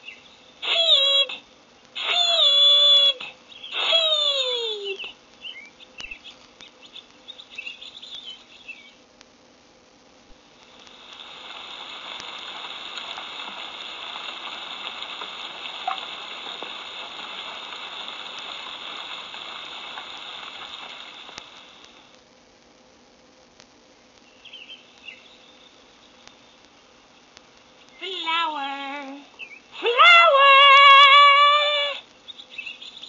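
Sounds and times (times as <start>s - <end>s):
faint bird chirps: 0.0s - 1.4s, 2.2s - 9.1s, 24.2s - 28.2s, 29.3s - 29.8s, 32.2s - 33.0s
hiss of falling rain: 10.2s - 33.0s.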